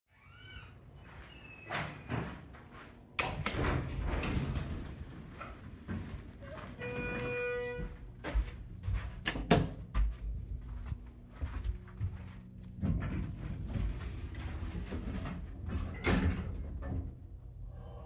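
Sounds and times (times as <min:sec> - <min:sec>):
elevator door clunk: 0:03.2 - 0:06.1, 0:14.7 - 0:17.2
elevator doors sliding: 0:03.3 - 0:07.8, 0:13.2 - 0:17.2.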